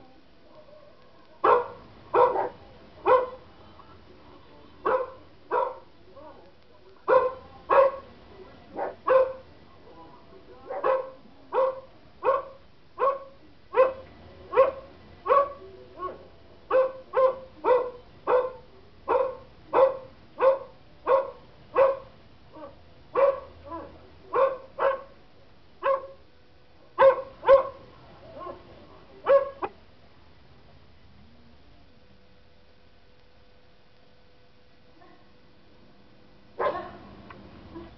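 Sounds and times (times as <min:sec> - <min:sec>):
dog barking: 0:00.5 - 0:03.4, 0:04.8 - 0:05.9, 0:07.1 - 0:08.1, 0:08.8 - 0:09.5, 0:10.7 - 0:25.2, 0:25.8 - 0:26.2, 0:26.9 - 0:27.8, 0:28.4 - 0:28.6, 0:29.2 - 0:29.8, 0:36.6 - 0:37.1.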